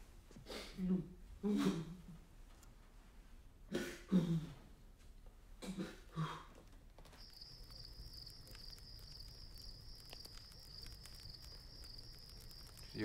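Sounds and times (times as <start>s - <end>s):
campfire crackling: 6.6s - 13.0s
crickets chirping: 7.0s - 13.0s.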